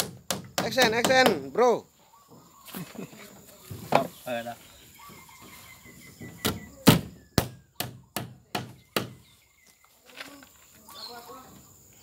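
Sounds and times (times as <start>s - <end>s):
hammer driving nail into wood: 0.0s - 1.4s.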